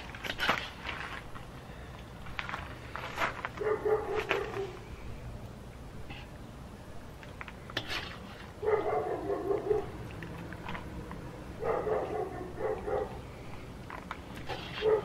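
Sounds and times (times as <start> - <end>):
dog barking: 3.6 - 4.8, 8.6 - 9.9, 11.6 - 13.2, 14.8 - 15.0.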